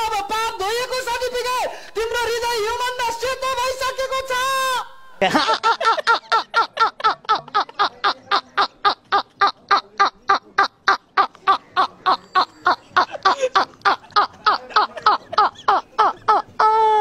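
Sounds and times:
men laughing hard: 0:05.2 - 0:17.0.

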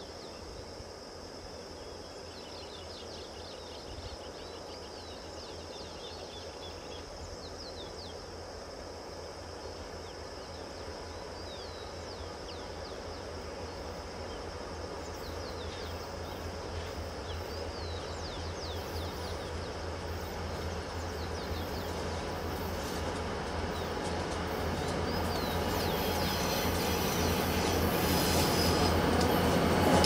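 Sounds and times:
locomotive engine rumbling: 0:15.6 - 0:30.0.

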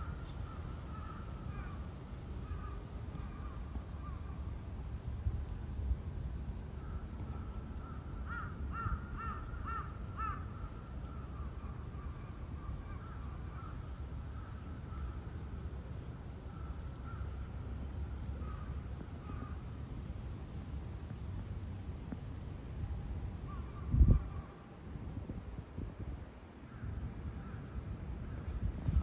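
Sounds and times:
crow cawing: 0:00.0 - 0:01.8, 0:02.4 - 0:04.3, 0:06.8 - 0:12.1, 0:12.9 - 0:15.2, 0:16.5 - 0:17.4, 0:18.4 - 0:19.6
low outdoor rumble: 0:00.0 - 0:29.0.

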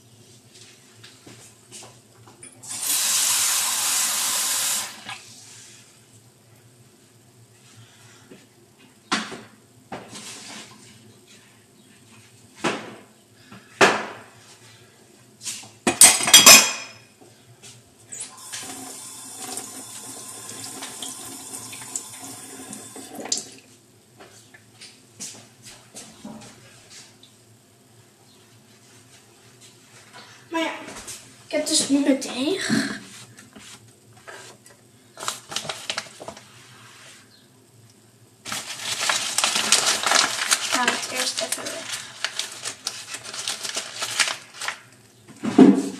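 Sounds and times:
dishes clattering: 0:15.9 - 0:17.0
loud crinkling rustle: 0:35.2 - 0:36.8, 0:38.4 - 0:45.0.

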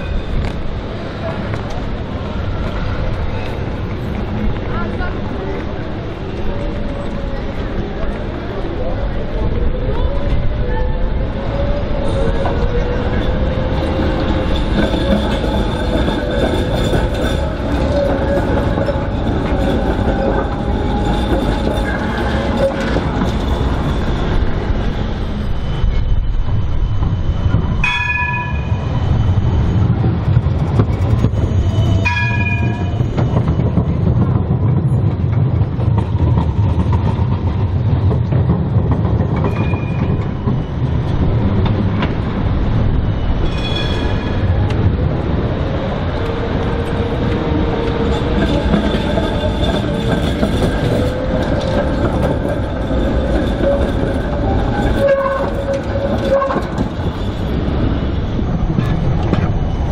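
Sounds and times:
tram rumbling past: 0:00.0 - 0:59.9
tram warning bell: 0:00.0 - 0:59.9
tram wheels squealing on rails: 0:00.0 - 0:59.9.

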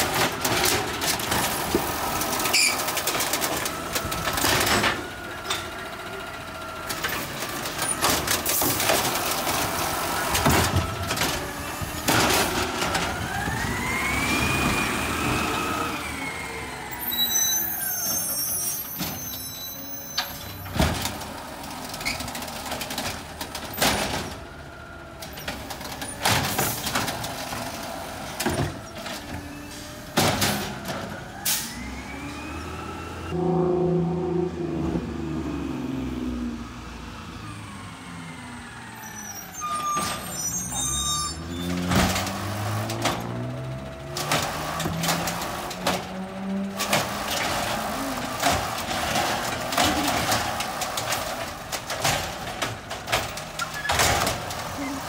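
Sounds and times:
bins banging: 0:00.0 - 0:06.3, 0:06.9 - 0:15.8, 0:18.0 - 0:31.6, 0:39.8 - 0:55.0
garbage truck hydraulics: 0:00.0 - 0:36.2, 0:37.4 - 0:55.0
low engine rumble: 0:33.3 - 0:37.5.

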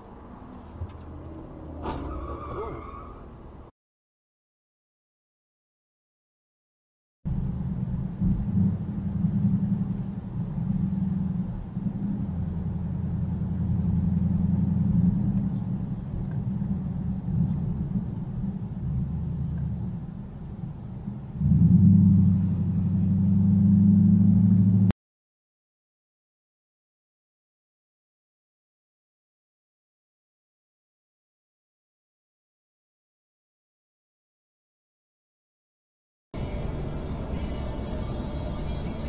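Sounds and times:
car engine drone: 0:00.0 - 0:03.7, 0:07.3 - 0:25.0, 0:36.4 - 0:39.0
road noise: 0:00.0 - 0:03.7, 0:07.3 - 0:25.0, 0:36.4 - 0:39.0.

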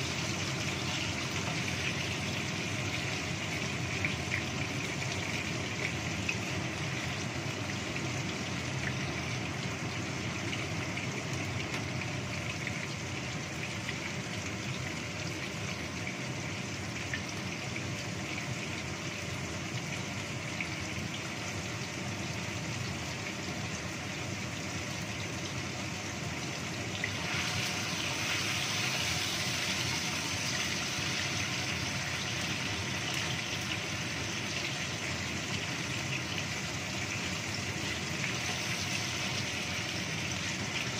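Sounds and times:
tofu sizzling in oil: 0:00.0 - 0:40.9
extractor hood fan rushing: 0:24.8 - 0:40.8.

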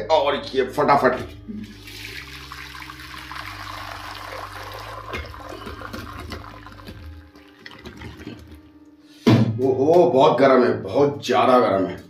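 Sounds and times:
water draining through strainer: 0:01.7 - 0:08.6.

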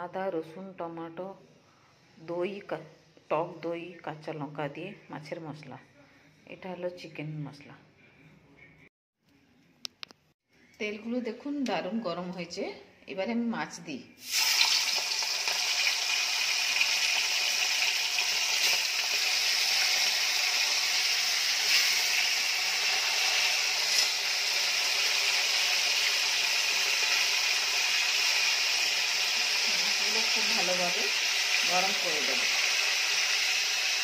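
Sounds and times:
fish sizzling in hot oil: 0:14.2 - 0:34.0.

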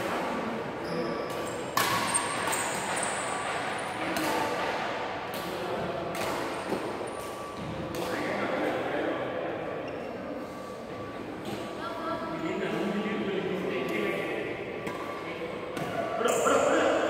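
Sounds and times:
racket hitting shuttlecock: 0:01.3 - 0:08.3, 0:14.8 - 0:16.5
voices echoing in hall: 0:08.1 - 0:17.0.

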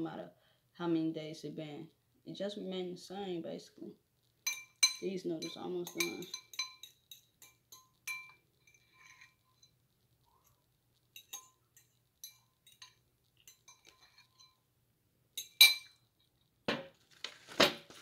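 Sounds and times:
fork clinking in plastic container: 0:04.5 - 0:08.4.

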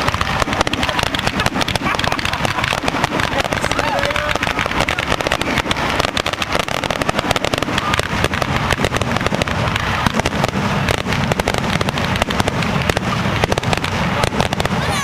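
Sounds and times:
fireworks cracking and popping: 0:00.0 - 0:15.0.

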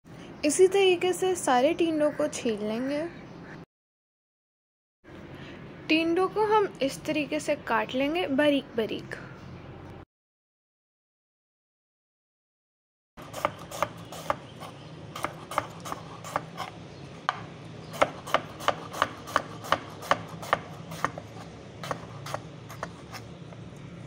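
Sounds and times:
knife chopping on wooden board: 0:13.2 - 0:23.2.

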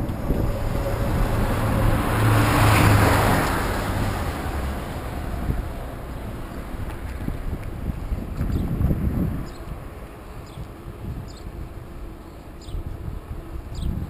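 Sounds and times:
truck passing on highway: 0:00.0 - 0:13.8.

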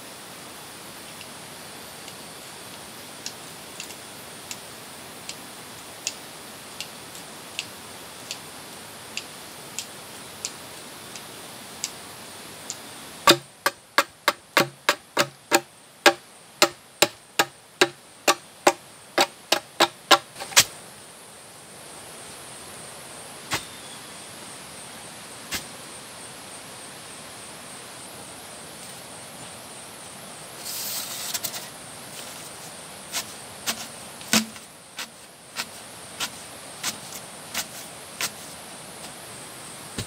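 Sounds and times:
forest hiss: 0:00.0 - 0:40.0
faint light ticks: 0:05.2 - 0:05.4, 0:09.1 - 0:12.0
blade chopping bamboo: 0:13.3 - 0:20.7, 0:33.1 - 0:38.4.

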